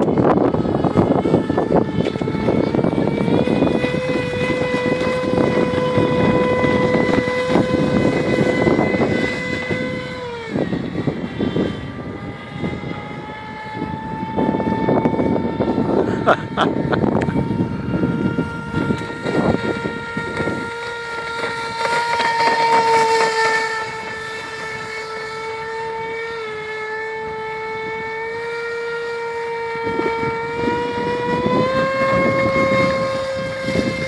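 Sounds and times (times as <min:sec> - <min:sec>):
rough rushing noise: 0:00.0 - 0:26.2
model boat motor whining: 0:00.0 - 0:34.0.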